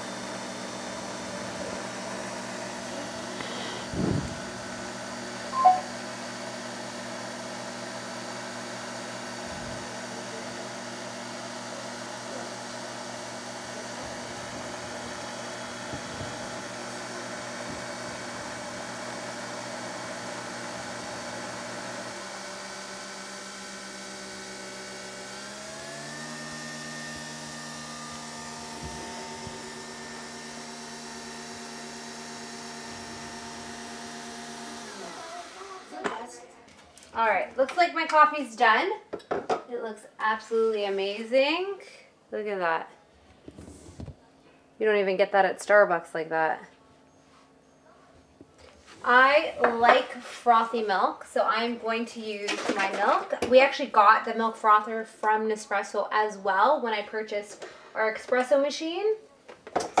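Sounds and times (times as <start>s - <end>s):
coffee machine humming: 0.0s - 36.2s.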